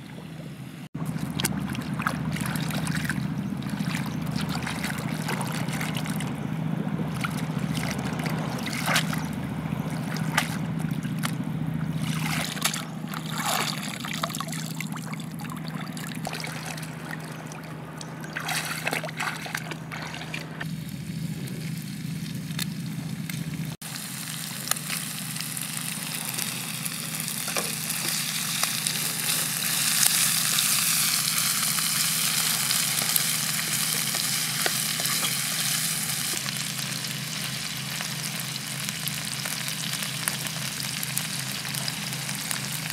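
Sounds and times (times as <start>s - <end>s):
water splashing and trickling: 1.0s - 20.7s
food sizzling in a frying pan: 23.8s - 42.9s.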